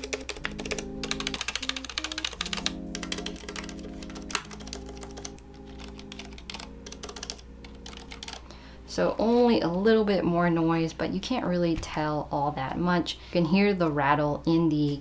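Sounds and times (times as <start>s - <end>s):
keyboard keys clacking: 0.0s - 8.5s
background music: 0.0s - 11.6s.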